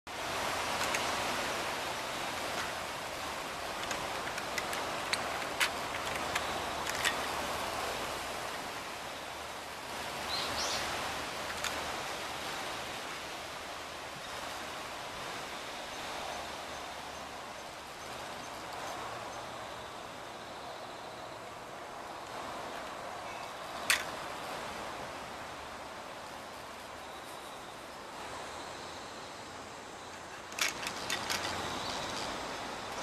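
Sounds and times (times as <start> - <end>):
outdoor background hiss: 0.1 - 33.0.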